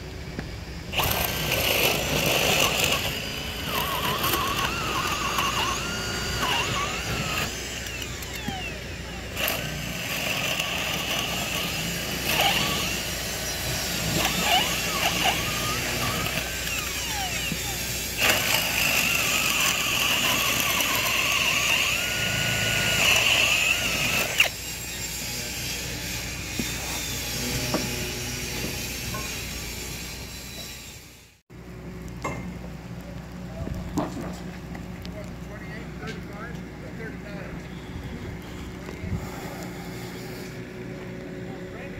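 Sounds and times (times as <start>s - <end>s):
cordless drill boring into wood: 0.9s - 27.8s.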